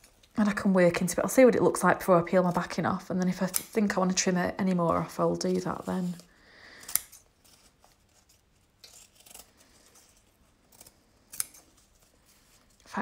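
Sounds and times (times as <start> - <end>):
scissors snipping fabric: 3.2 - 4.0, 6.8 - 7.3, 8.3 - 12.0.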